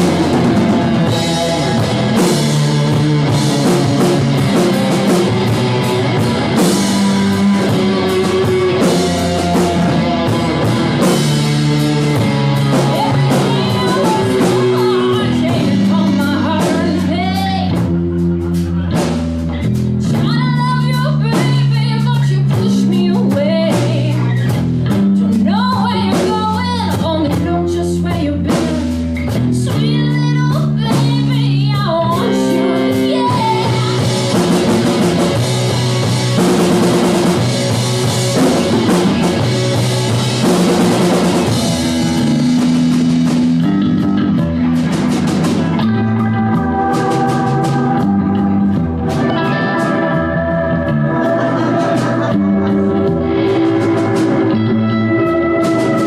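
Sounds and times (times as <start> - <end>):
drums and cymbals: 0.0 - 56.0
electric guitars: 0.0 - 56.0
woman singing: 12.6 - 17.9, 20.0 - 24.5, 25.2 - 34.7.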